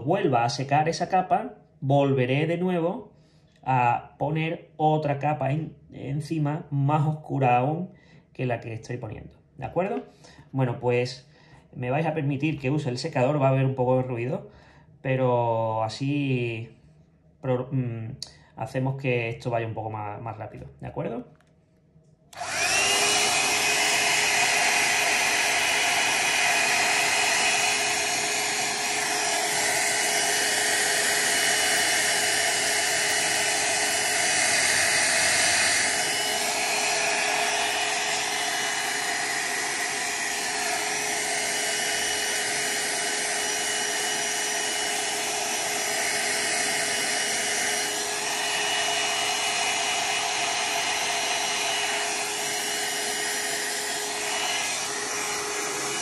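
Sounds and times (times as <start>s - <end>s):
hair dryer running: 22.3s - 56.0s.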